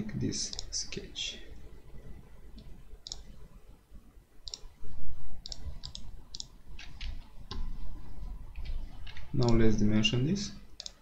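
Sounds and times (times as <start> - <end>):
computer mouse clicking: 0.5 - 0.7, 2.5 - 3.4, 4.4 - 4.8, 5.4 - 7.9, 8.6 - 9.7, 10.8 - 11.0.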